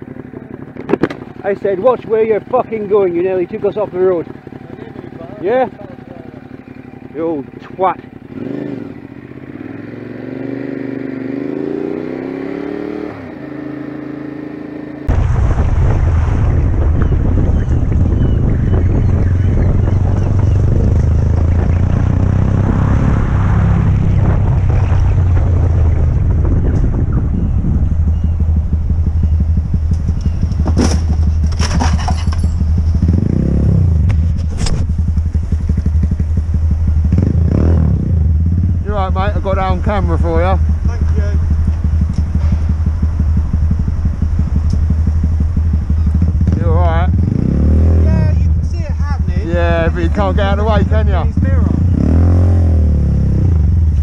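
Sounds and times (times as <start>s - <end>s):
motorcycle engine accelerating: 0.0s - 54.0s
wind rumble on microphone: 15.1s - 54.0s
motorcycle crashing and sliding: 30.6s - 33.3s.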